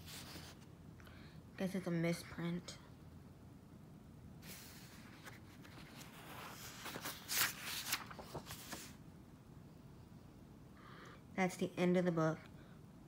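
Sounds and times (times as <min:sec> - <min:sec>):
paper pages rustling: 0:00.0 - 0:00.7, 0:04.4 - 0:09.0.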